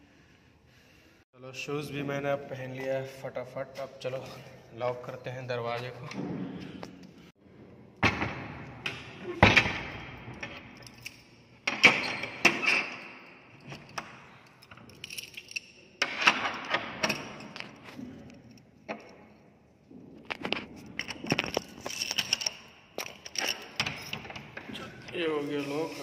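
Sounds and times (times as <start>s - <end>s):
door bolt and padlock rattling: 10.3s - 17.9s, 20.8s - 24.6s
keys clinking: 12.6s - 16.0s.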